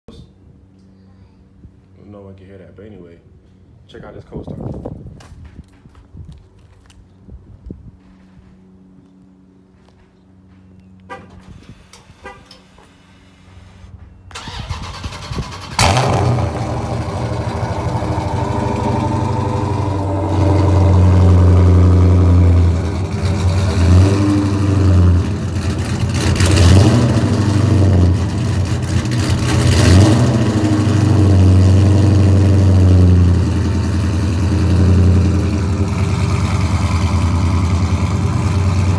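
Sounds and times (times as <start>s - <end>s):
car engine idling: 15.6s - 38.9s.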